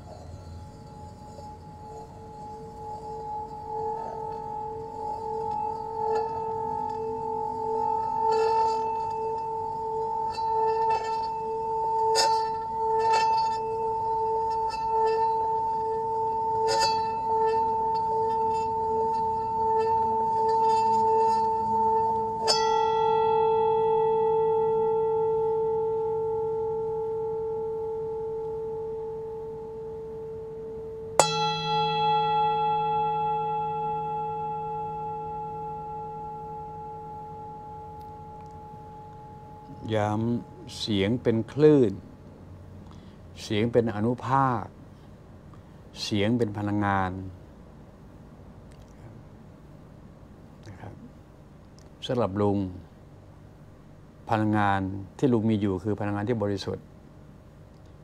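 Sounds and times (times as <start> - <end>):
singing bowl struck and ringing: 0.0 - 42.0
singing bowl humming: 0.0 - 58.0
striker ticking on bowl rim: 1.0 - 40.7.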